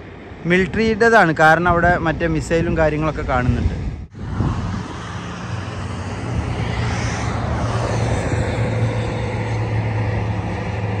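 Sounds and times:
road noise: 0.0s - 11.0s
vehicle engine humming: 4.1s - 11.0s.

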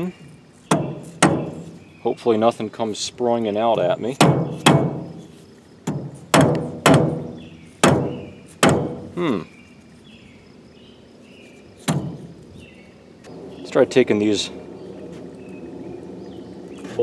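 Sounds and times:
hammer striking cast iron: 0.7s - 1.6s, 4.2s - 5.2s, 5.9s - 9.1s.

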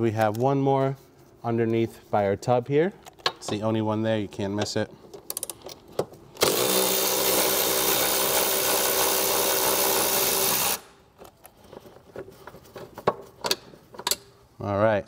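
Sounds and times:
power ratchet motor whine: 6.4s - 10.9s.

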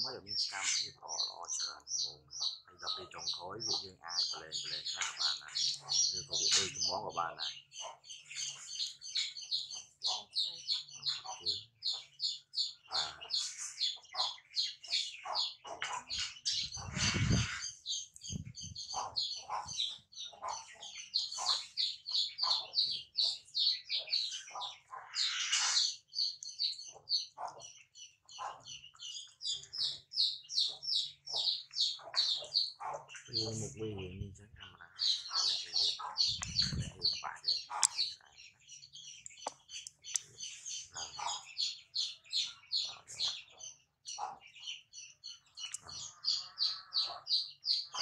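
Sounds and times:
small birds chirping: 0.0s - 48.0s.

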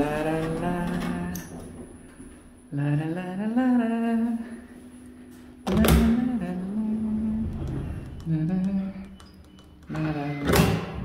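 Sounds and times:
man humming: 5.7s - 9.2s.

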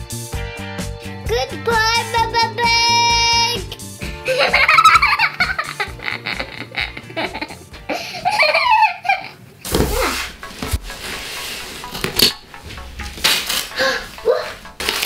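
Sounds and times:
wrapping paper crinkling: 13.2s - 15.0s.

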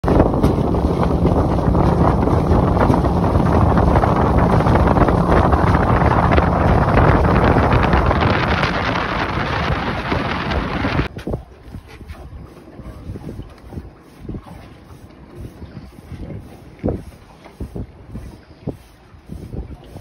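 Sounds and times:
boat motor humming: 0.0s - 20.0s
wind buffeting microphone: 0.0s - 20.0s.

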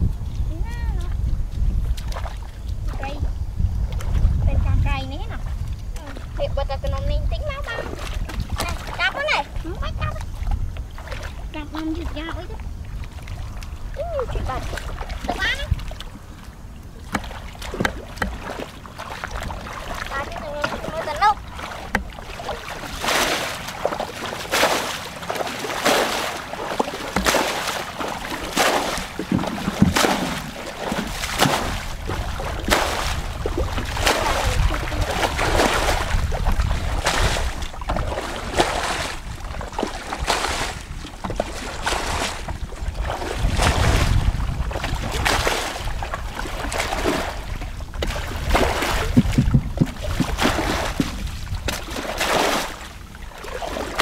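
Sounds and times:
bucket splashing water: 5.3s - 54.0s.

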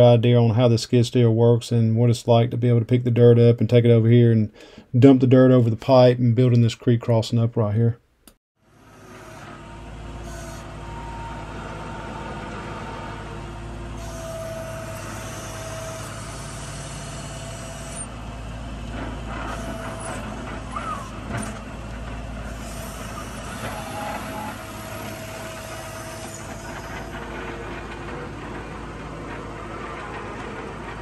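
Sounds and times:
skid steer engine running: 8.6s - 31.0s.

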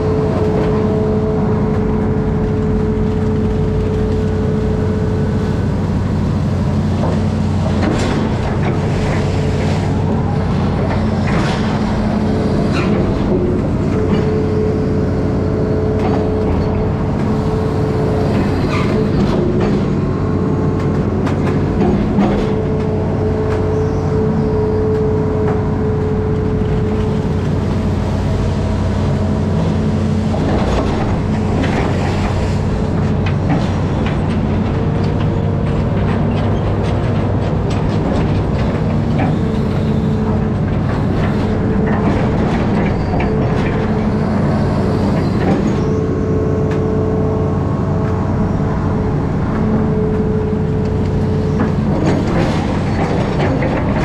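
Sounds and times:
diesel engine running: 0.0s - 54.0s
machine clanks and knocks: 6.7s - 15.1s, 15.7s - 24.1s, 30.2s - 47.0s, 49.1s - 54.0s.

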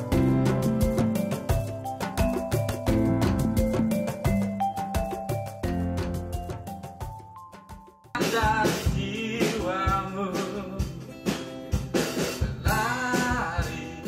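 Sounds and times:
song with vocal and drum kit: 8.2s - 14.0s.

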